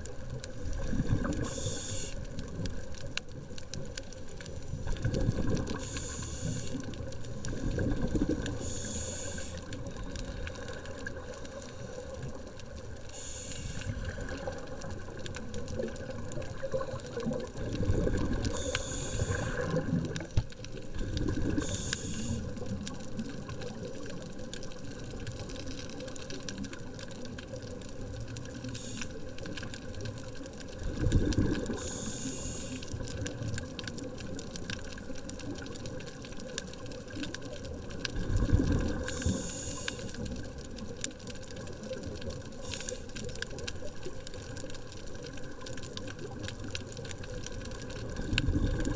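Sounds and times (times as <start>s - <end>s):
exhaled bubbles rushing underwater: 0.0s - 3.5s, 4.7s - 25.3s, 29.4s - 42.6s, 43.2s - 48.9s
regulator hissing inhales: 1.4s - 2.2s, 5.8s - 6.8s, 8.6s - 9.6s, 13.1s - 14.0s, 18.5s - 19.7s, 21.6s - 22.5s, 31.8s - 32.9s, 39.2s - 40.1s.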